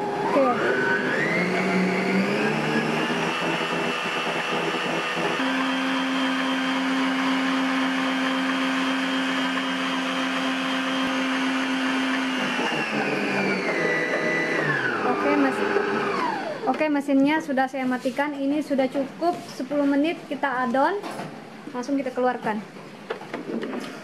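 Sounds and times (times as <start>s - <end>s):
stand mixer motor whining: 0.0s - 16.7s.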